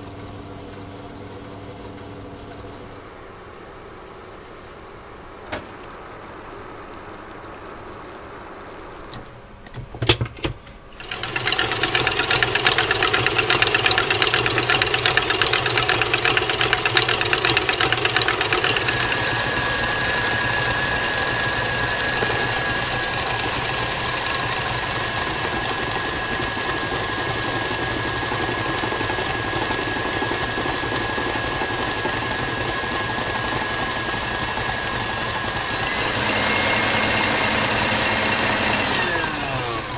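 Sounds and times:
stand mixer whisking: 0:11.0 - 0:39.9.

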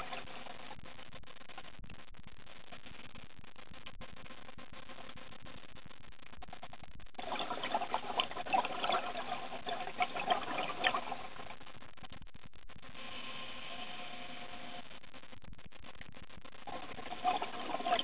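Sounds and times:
underwater air bubbling: 0:07.2 - 0:11.6, 0:16.7 - 0:18.0.

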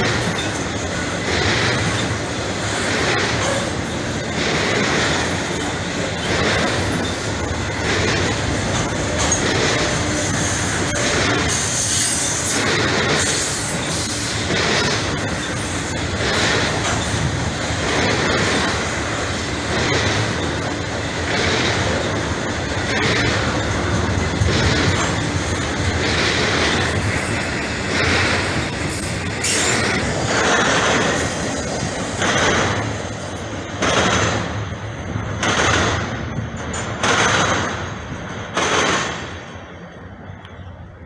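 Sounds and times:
freight train wheels rumbling on rail: 0:00.0 - 0:41.0
high wheel squeal: 0:08.8 - 0:14.6, 0:26.7 - 0:30.4.

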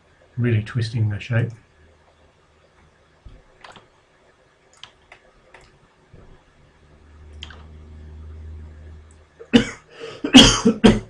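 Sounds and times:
low hum: 0:00.0 - 0:10.4
computer mouse clicking: 0:03.3 - 0:03.9, 0:04.7 - 0:06.3.

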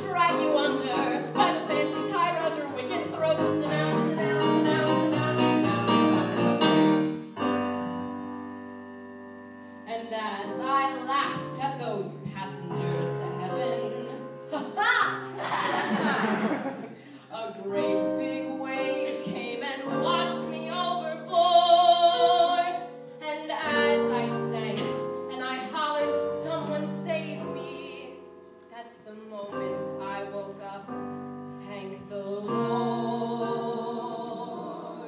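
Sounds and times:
woman singing operatically: 0:00.0 - 0:05.7, 0:17.3 - 0:28.2, 0:31.6 - 0:35.0
piano accompaniment: 0:00.0 - 0:35.0.

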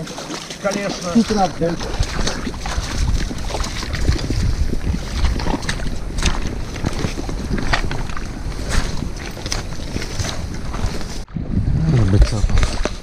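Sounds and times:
footsteps crunching on stones: 0:00.0 - 0:11.3
wind buffeting microphone: 0:01.1 - 0:13.0.

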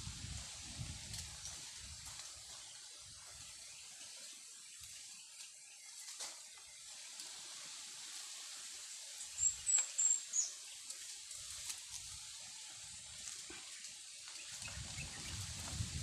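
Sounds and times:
steady high hiss: 0:00.0 - 0:16.0
small bird chirping: 0:09.2 - 0:11.0.

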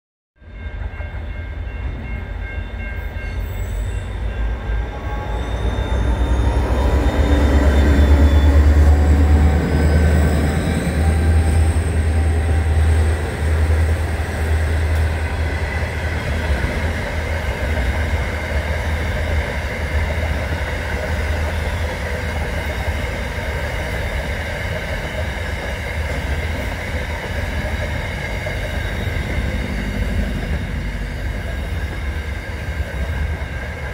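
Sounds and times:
locomotive engine rumble: 0:26.4 - 0:33.9.

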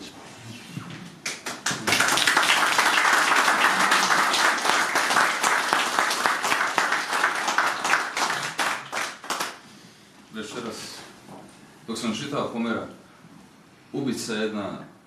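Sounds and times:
audience applauding: 0:01.2 - 0:09.6.

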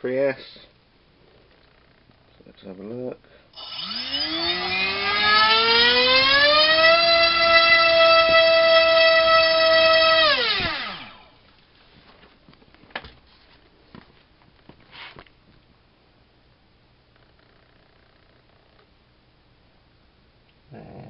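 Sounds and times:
electric motor propeller whine: 0:03.6 - 0:11.4.

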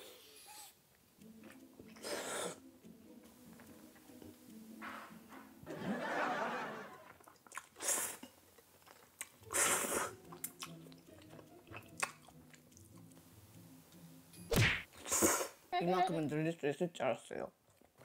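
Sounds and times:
biting and chewing: 0:10.2 - 0:13.2.

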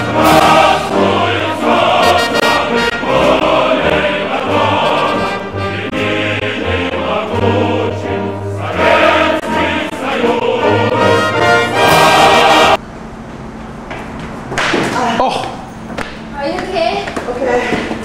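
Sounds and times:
choir singing with accompaniment: 0:00.0 - 0:12.8.

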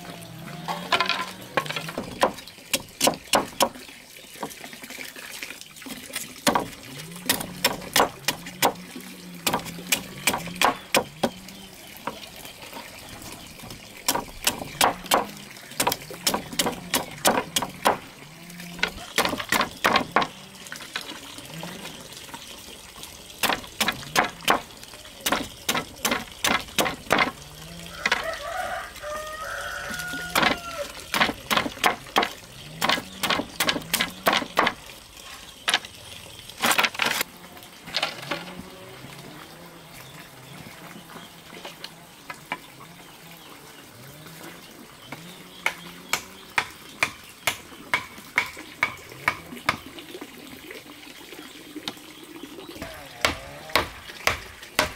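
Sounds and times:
machete chopping bamboo: 0:01.7 - 0:03.8, 0:06.4 - 0:08.8, 0:09.4 - 0:11.4, 0:14.0 - 0:18.1, 0:18.8 - 0:20.4, 0:23.4 - 0:27.4, 0:30.3 - 0:34.8, 0:45.7 - 0:49.8, 0:52.8 - 0:54.9.

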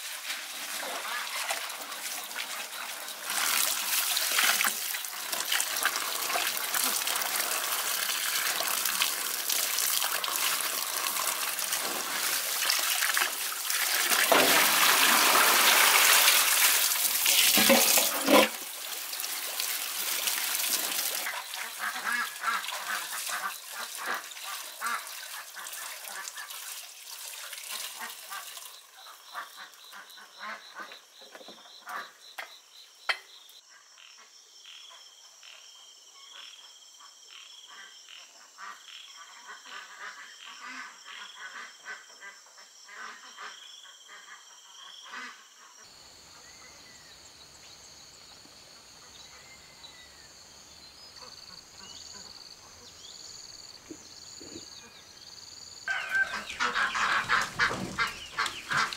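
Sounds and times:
tap water splashing into basin: 0:03.3 - 0:28.7, 0:56.7 - 0:58.9
frogs croaking: 0:21.0 - 0:26.7, 0:27.8 - 0:58.9
night insects chorus: 0:28.0 - 0:58.9.

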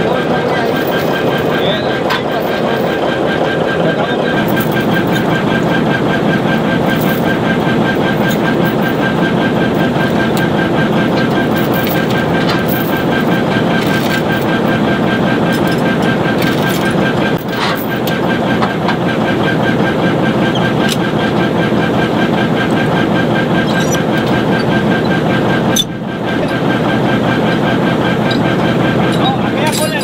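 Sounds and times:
diesel engine idling: 0:00.0 - 0:30.0
metal chains clinking: 0:00.4 - 0:03.1, 0:04.4 - 0:06.0, 0:06.7 - 0:14.6, 0:15.5 - 0:18.1, 0:23.6 - 0:24.8, 0:28.2 - 0:30.0.

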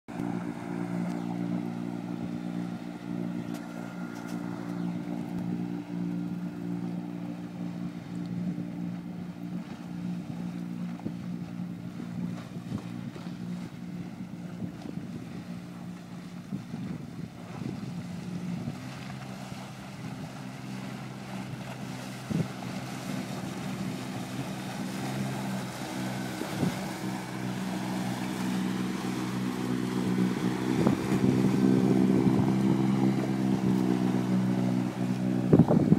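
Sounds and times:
boat engine running: 0:00.1 - 0:35.9
choppy water washing: 0:00.1 - 0:35.9
wind on microphone: 0:08.4 - 0:35.9.

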